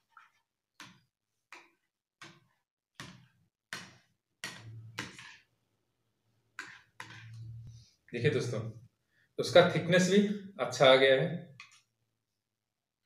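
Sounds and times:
metal spoon stirring gel in bowl: 6.4s - 7.9s, 11.5s - 12.0s.

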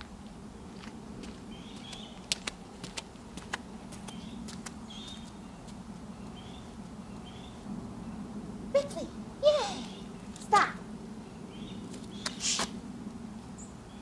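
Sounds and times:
birds chirping: 1.4s - 2.8s, 3.9s - 12.8s.

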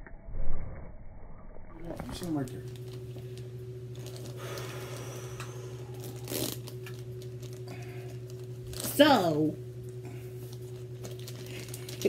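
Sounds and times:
low hum: 0.0s - 12.0s
plastic packaging crinkling: 2.0s - 4.6s, 5.9s - 9.3s, 10.4s - 12.0s.

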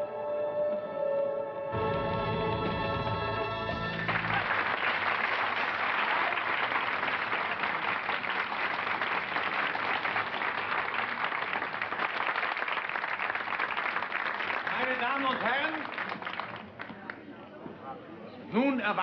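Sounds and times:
audience applauding: 3.7s - 17.2s.

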